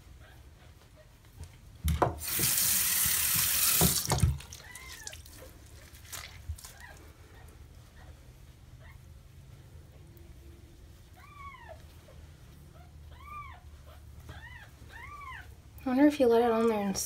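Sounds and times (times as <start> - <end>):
tap water splashing into basin: 2.0 - 5.4.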